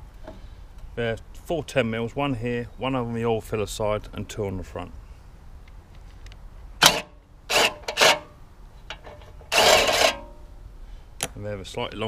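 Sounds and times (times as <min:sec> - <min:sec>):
cordless impact driver: 0:06.8 - 0:08.2.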